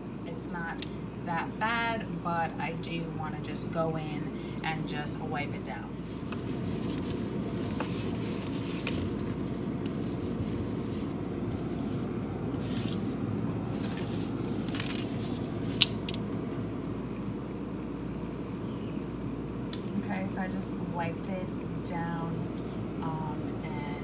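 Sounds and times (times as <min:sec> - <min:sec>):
steady low hum: 0:00.0 - 0:24.0
cloth rubbing on plastic: 0:05.9 - 0:15.8.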